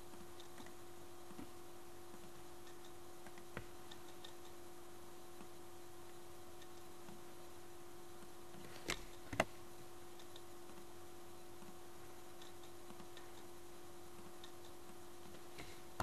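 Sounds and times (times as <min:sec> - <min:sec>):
steady low hum: 0:00.0 - 0:16.0
computer mouse clicks: 0:00.1 - 0:04.6, 0:08.2 - 0:11.0, 0:11.6 - 0:16.0
faint ticks: 0:00.1 - 0:04.7, 0:05.3 - 0:07.3, 0:10.1 - 0:15.8.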